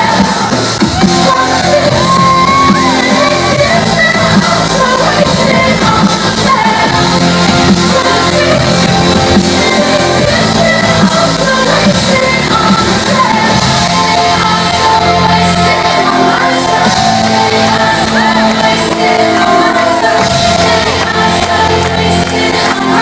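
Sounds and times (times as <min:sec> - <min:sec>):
crowd shouting: 0:00.0 - 0:05.4, 0:13.3 - 0:23.0
electronic dance music: 0:00.0 - 0:23.0
woman singing into a microphone: 0:00.0 - 0:23.0.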